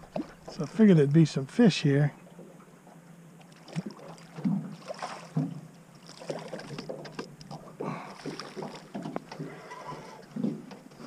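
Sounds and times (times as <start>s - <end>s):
steady low hum: 0.0s - 11.0s
water splashing against boat hull: 3.4s - 11.0s.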